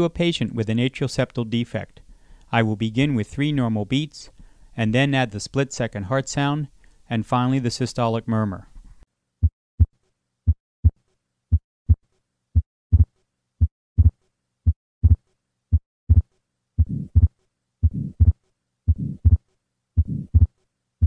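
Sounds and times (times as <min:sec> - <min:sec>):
heartbeat: 0:10.5 - 0:12.0, 0:12.6 - 0:19.4, 0:20.0 - 0:20.6
soft heart murmur: 0:12.6 - 0:14.2, 0:15.0 - 0:19.4, 0:20.0 - 0:20.5.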